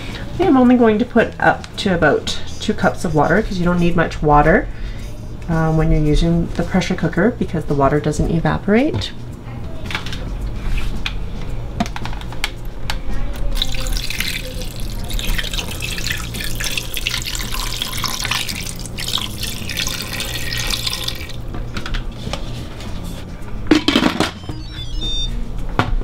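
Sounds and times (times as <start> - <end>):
water pouring into metal pot: 13.5 - 21.4.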